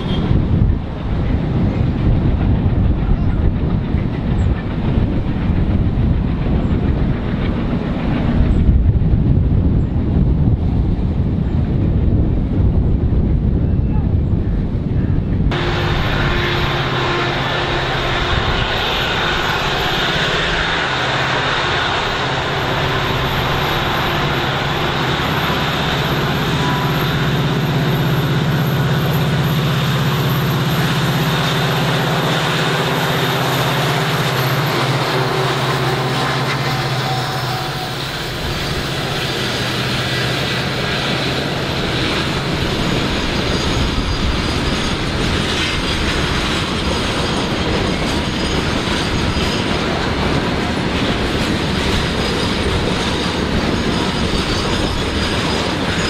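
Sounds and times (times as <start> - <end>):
diesel locomotive engine droning: 0.0 - 56.0.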